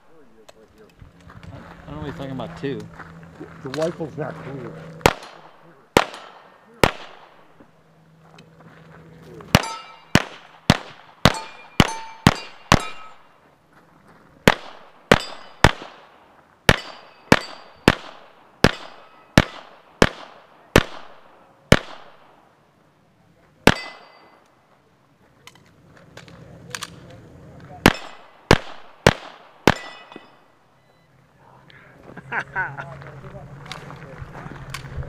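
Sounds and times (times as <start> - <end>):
pistol shots: 5.0 - 7.6, 9.5 - 13.3, 14.4 - 22.5, 23.6 - 24.4, 27.8 - 30.5
steel targets clanging: 9.5 - 10.6, 11.2 - 13.4, 15.0 - 15.8, 16.7 - 18.0, 18.6 - 19.8, 23.7 - 24.5, 27.8 - 28.5, 29.6 - 30.6.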